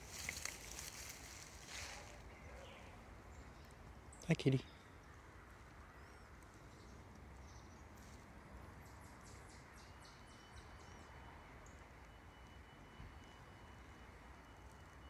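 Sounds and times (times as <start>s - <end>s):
faint distant high chirps: 9.9s - 15.0s
thin steady high whine: 10.1s - 15.0s.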